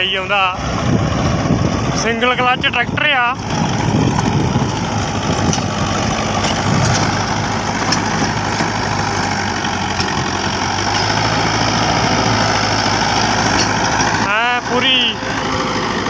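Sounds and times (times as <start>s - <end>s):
tractor diesel engine under load: 0.0s - 16.0s
rotavator churning soil: 3.4s - 16.0s.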